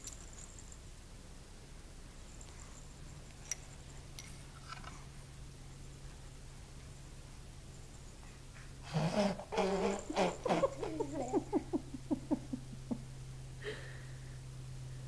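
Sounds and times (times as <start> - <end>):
person laughing: 9.0 - 13.9.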